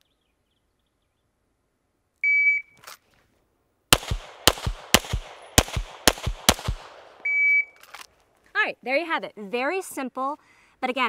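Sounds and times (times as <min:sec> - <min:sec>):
pistol shots: 0:03.9 - 0:07.3
shot timer beep: 0:07.2 - 0:07.8.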